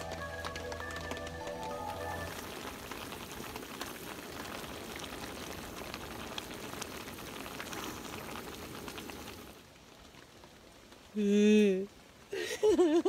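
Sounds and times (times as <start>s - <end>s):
pot of broth bubbling: 0.0s - 9.8s
rain pattering: 0.0s - 13.0s.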